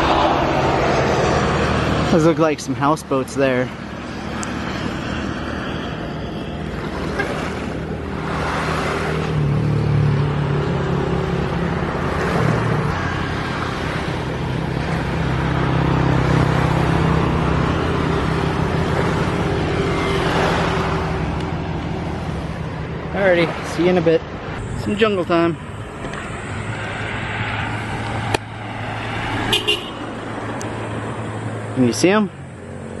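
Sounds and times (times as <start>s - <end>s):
engine droning: 0.0s - 33.0s
steady rushing noise: 0.0s - 33.0s.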